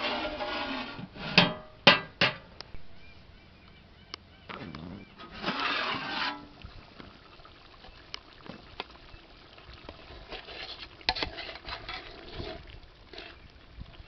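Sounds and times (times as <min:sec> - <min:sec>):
curry simmering in a pot: 0:05.7 - 0:14.0
metal ladle scraping crab shells: 0:10.2 - 0:13.5.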